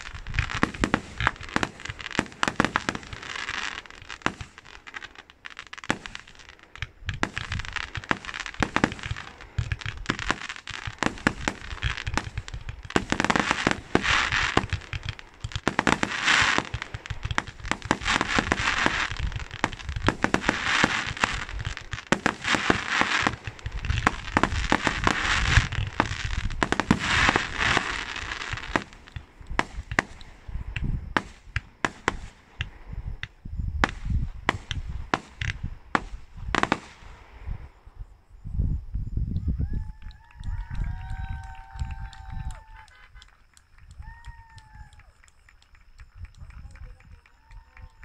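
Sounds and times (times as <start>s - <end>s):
fireworks popping and crackling: 0.0s - 37.6s, 39.8s - 48.0s
fireworks sharp bangs: 0.0s - 37.8s.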